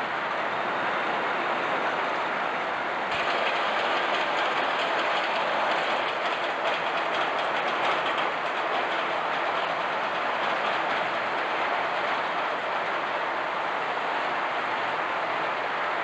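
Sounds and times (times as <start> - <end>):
steady rushing noise: 0.0 - 16.0.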